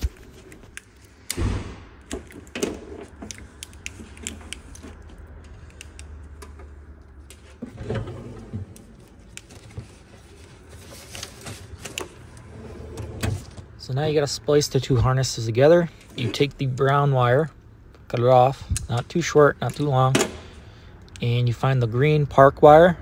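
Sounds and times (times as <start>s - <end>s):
wiring harness rustling and clicking: 2.0s - 7.6s.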